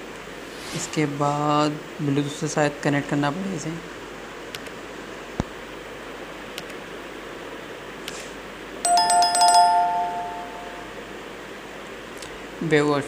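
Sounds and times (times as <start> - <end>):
two-tone bell chime: 8.8 - 11.0.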